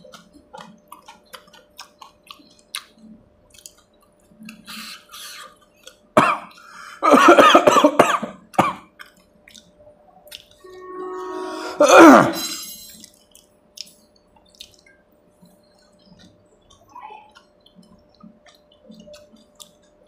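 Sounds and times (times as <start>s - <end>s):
man chewing crunchy food: 0.0s - 7.4s, 8.3s - 10.6s, 13.0s - 20.0s
man coughing: 6.2s - 8.9s, 11.8s - 12.6s.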